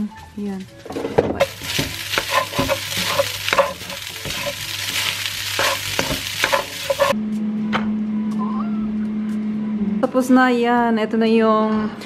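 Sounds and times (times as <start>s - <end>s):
rice sizzling in a frying pan: 1.4s - 7.2s
spatula scraping a pan: 1.4s - 7.2s.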